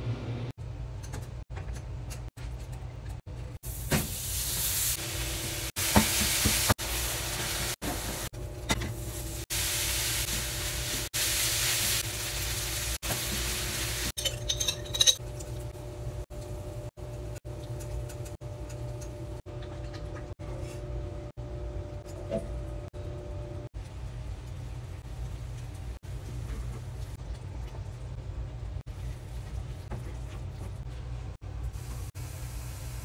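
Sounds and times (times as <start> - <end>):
pots steaming: 3.6 - 33.0
meat sizzling in a skillet: 9.4 - 14.2.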